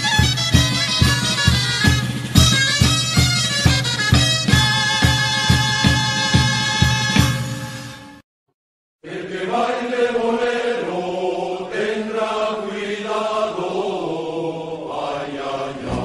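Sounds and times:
folk song singing: 0:09.0 - 0:16.0.

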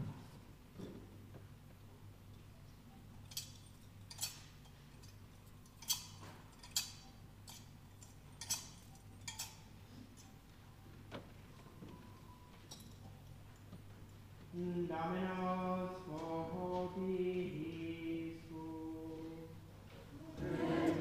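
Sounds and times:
faint steady low hum: 0:00.0 - 0:21.0.

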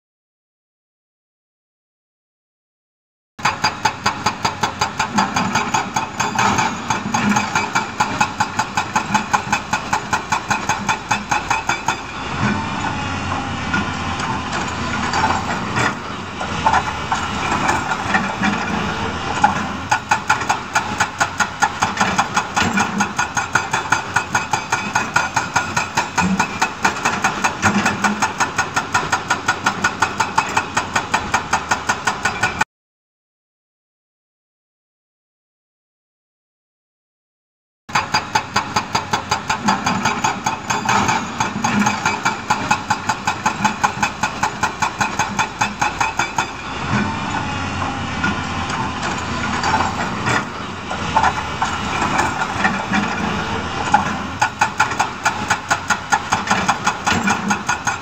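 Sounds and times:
excavator diesel engine running: 0:03.4 - 0:32.6, 0:37.9 - 0:58.0.

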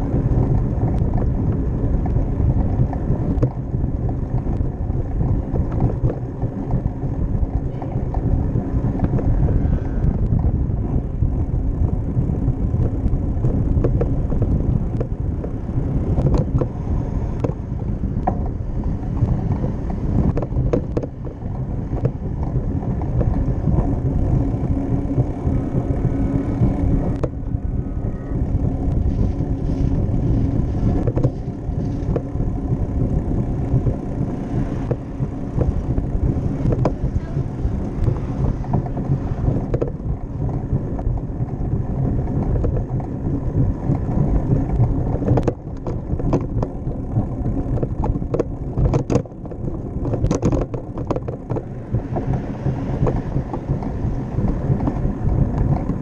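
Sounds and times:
bike clicks and rattles: 0:00.0 - 0:56.0
wind rumble over microphone: 0:00.0 - 0:56.0.

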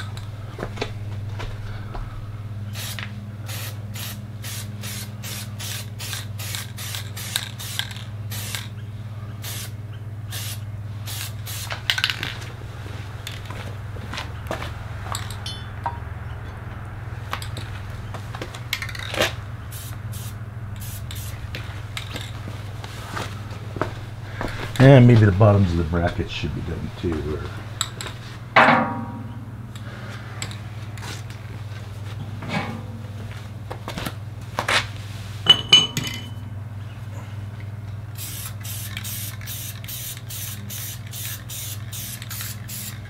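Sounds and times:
steady low hum: 0:00.0 - 0:43.0
spray paint can spurts: 0:02.8 - 0:08.7, 0:10.3 - 0:12.3, 0:38.2 - 0:43.0.

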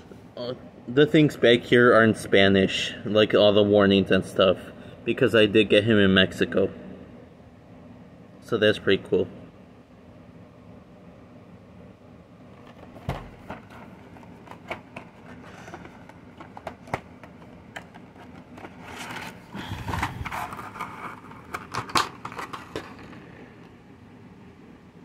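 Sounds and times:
cardboard and packaging rustling: 0:12.6 - 0:23.3.

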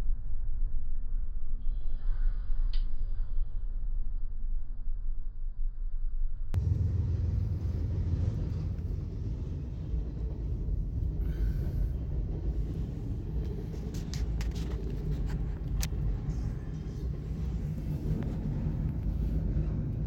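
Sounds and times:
train wheels rumbling on rails: 0:06.6 - 0:20.0.

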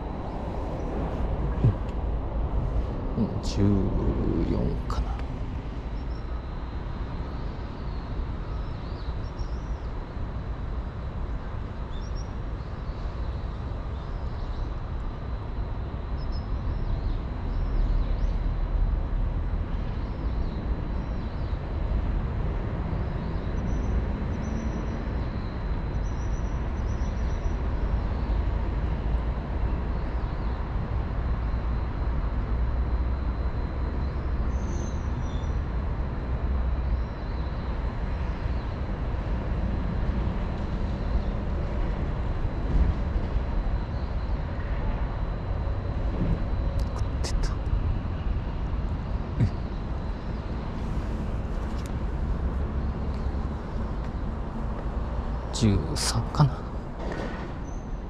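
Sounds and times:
low rumble: 0:00.0 - 0:06.1.

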